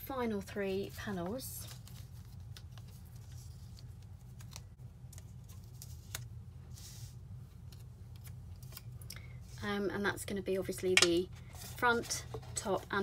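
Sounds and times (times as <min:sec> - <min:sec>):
paper rustling: 0:00.9 - 0:08.9.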